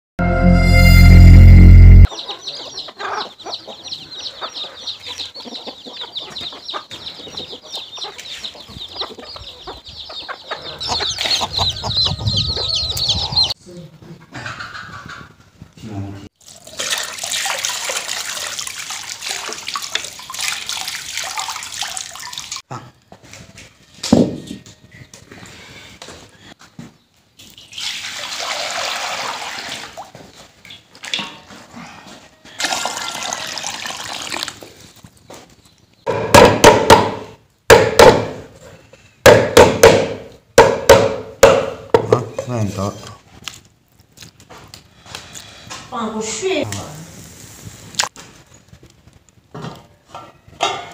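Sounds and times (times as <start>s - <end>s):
water poured into a metal basin: 16.4s - 22.6s, 27.7s - 30.2s, 32.6s - 34.7s
water poured into a wok: 16.4s - 22.6s, 27.7s - 30.1s, 32.6s - 34.6s
cleaver chopping on a wooden board: 36.1s - 38.4s, 39.3s - 42.3s.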